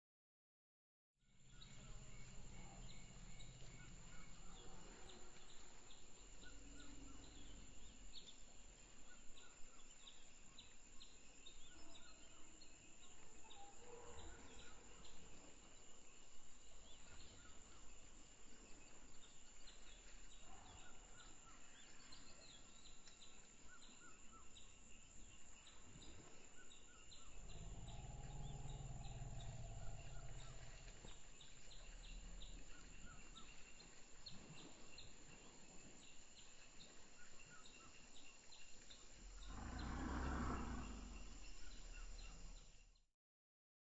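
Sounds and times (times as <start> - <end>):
bird calls: 1.5 - 12.4, 25.7 - 34.8, 37.2 - 42.8
insects chirring: 26.6 - 34.2, 35.0 - 42.8
low rumble: 27.2 - 33.4.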